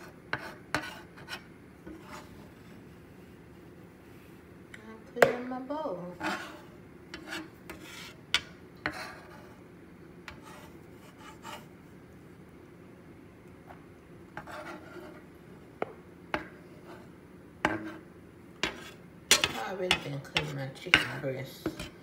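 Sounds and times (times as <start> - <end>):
spatula scraping on wooden board: 0.0 - 2.9, 6.1 - 9.6, 10.3 - 11.7, 14.4 - 15.3, 16.4 - 22.0
spatula tapping on board: 15.8 - 16.6, 18.6 - 21.9.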